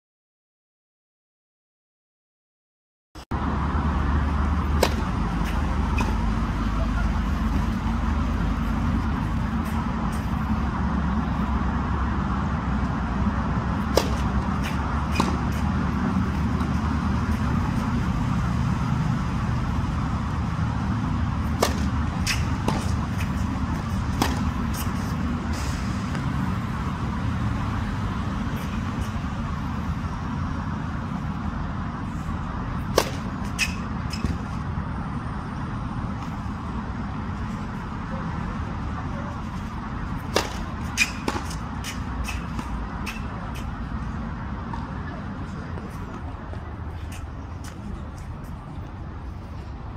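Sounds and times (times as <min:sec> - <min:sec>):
low outdoor rumble: 0:03.3 - 0:49.9
tennis ball bouncing and struck: 0:04.3 - 0:06.7, 0:13.7 - 0:18.1, 0:21.0 - 0:26.4, 0:32.8 - 0:34.6, 0:40.1 - 0:43.8.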